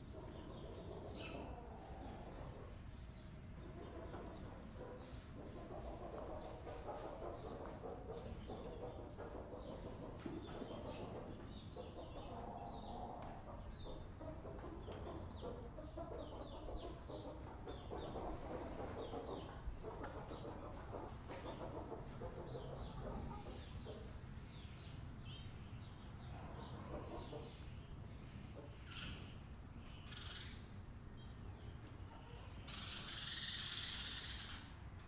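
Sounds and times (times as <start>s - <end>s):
hen clucking: 0.0s - 3.0s, 3.6s - 24.7s, 26.2s - 29.3s
chicks peeping: 0.0s - 35.0s.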